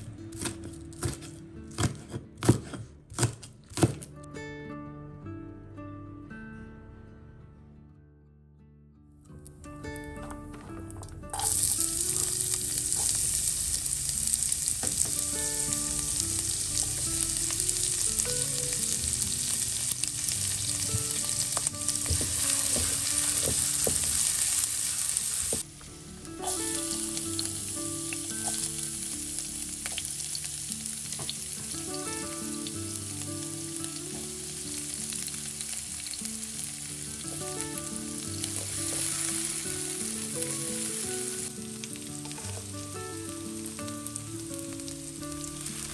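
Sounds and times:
food sizzling in hot oil: 11.3s - 25.6s, 26.2s - 45.9s.

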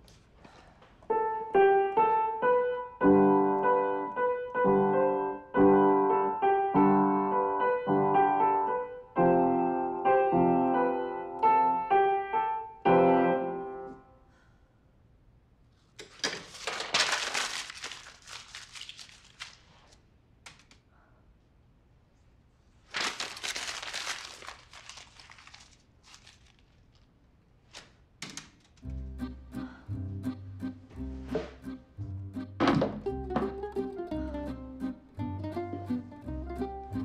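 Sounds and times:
piano chords: 1.1s - 14.2s, 28.8s - 37.0s
crinkling: 15.8s - 20.9s, 22.7s - 29.0s.

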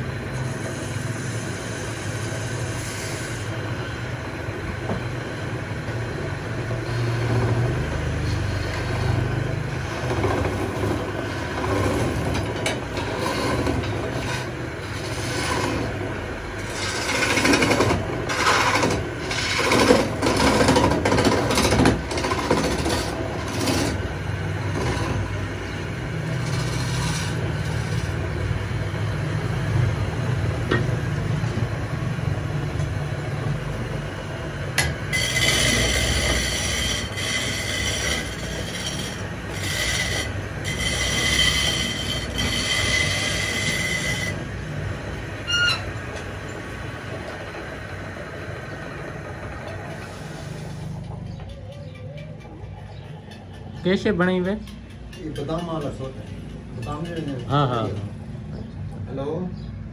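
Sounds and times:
wood lathe motor hum: 0.0s - 30.7s, 34.2s - 51.2s
chisel cutting spinning wood: 0.0s - 30.9s, 34.2s - 51.2s
high squeal: 45.4s - 46.0s.

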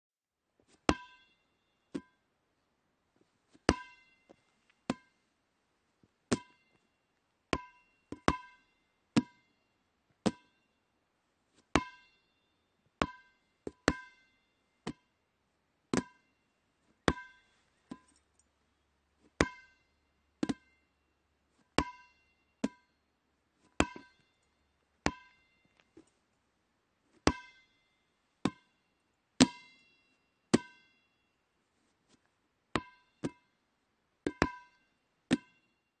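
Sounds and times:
ball bouncing with ringing tone: 0.9s - 2.2s, 3.7s - 5.2s, 6.3s - 6.9s, 7.5s - 9.6s, 10.2s - 10.7s, 11.7s - 15.1s, 15.9s - 16.4s, 17.0s - 18.2s, 19.2s - 20.9s, 21.8s - 23.0s, 23.7s - 26.1s, 27.2s - 27.8s, 28.4s - 31.3s, 32.8s - 33.6s, 34.2s - 35.9s.

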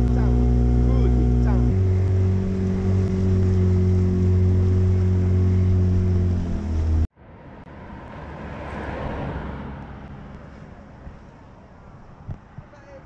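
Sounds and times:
boat engine running: 0.0s - 7.1s.

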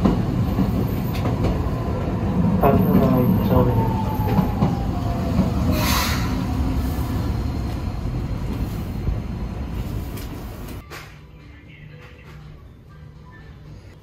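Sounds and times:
train rumbling inside carriage: 0.0s - 10.9s.

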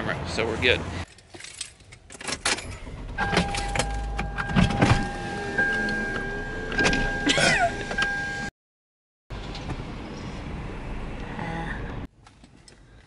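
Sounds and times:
electronic car warning tone: 3.2s - 8.5s.

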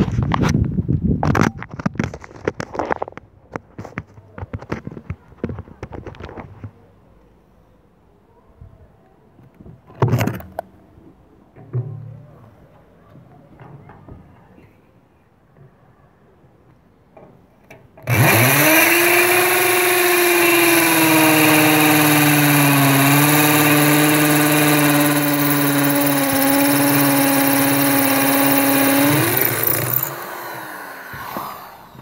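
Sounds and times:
electric drill running: 18.1s - 32.0s.

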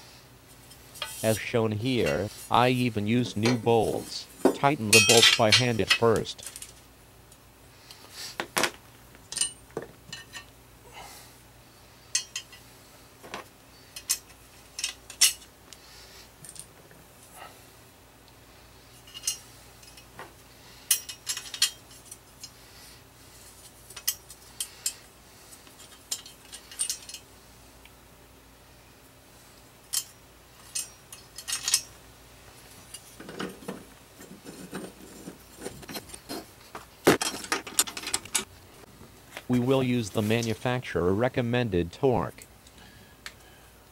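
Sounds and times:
lawn mower blades clinking: 0.7s - 6.8s, 37.1s - 38.5s
dull metal knocks and rubs: 33.2s - 36.5s.

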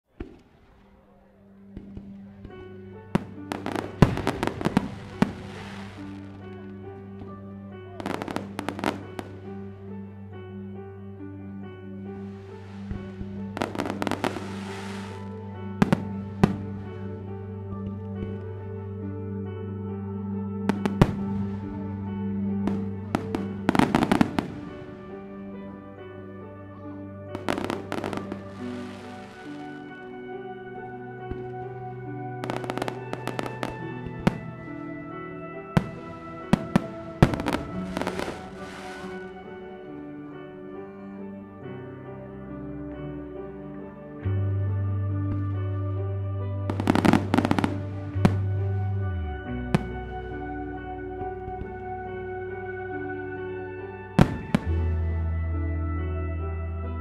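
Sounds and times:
fireworks bangs: 0.1s - 6.5s, 8.0s - 9.5s, 12.4s - 17.1s, 22.7s - 25.5s, 27.3s - 29.9s, 32.4s - 34.9s, 35.8s - 39.6s, 46.7s - 48.6s
music with sustained notes: 0.1s - 57.0s
fireworks crackling hiss: 3.2s - 6.6s, 12.2s - 17.0s, 27.4s - 29.9s, 35.8s - 39.5s.

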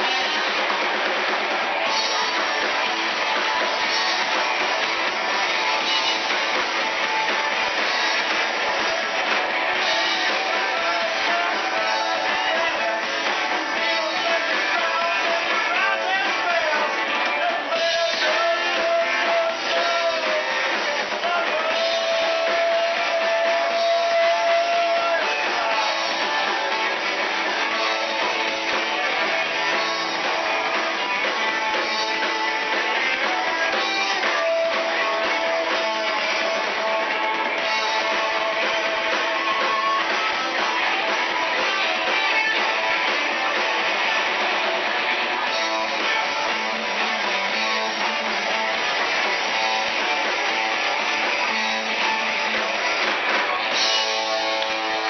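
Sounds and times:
guitar: 0.0s - 55.0s
live band playing upbeat music: 0.0s - 55.0s.

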